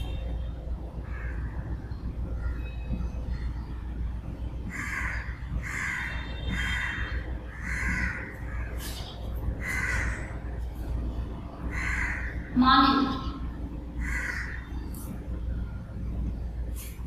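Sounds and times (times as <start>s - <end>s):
steady low hum: 0.0s - 17.0s
crows cawing: 1.1s - 1.6s, 4.7s - 9.0s, 9.6s - 10.5s, 11.7s - 12.6s, 14.0s - 14.8s.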